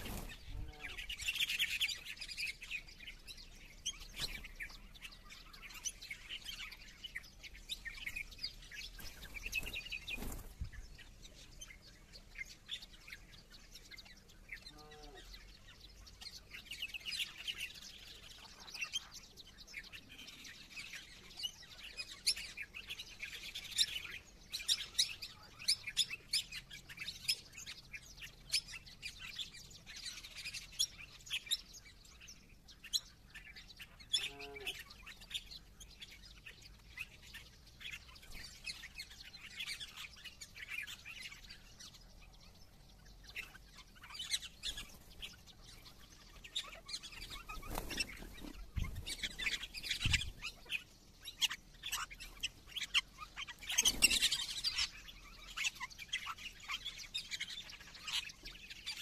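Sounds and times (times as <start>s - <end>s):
songbirds chirping and twittering: 0.0s - 59.0s.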